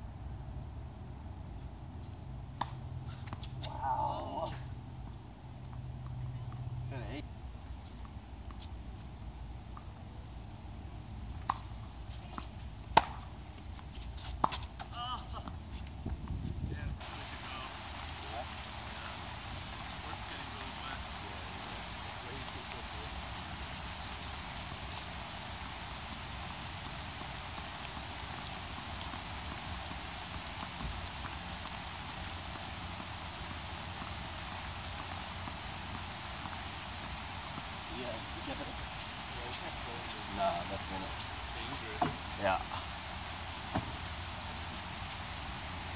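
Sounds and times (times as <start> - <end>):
insects droning: 0.0 - 45.9
outdoor background hiss: 0.0 - 45.9
tennis ball pops: 2.6 - 3.7, 11.4 - 11.7, 12.4 - 13.3, 43.7 - 44.0.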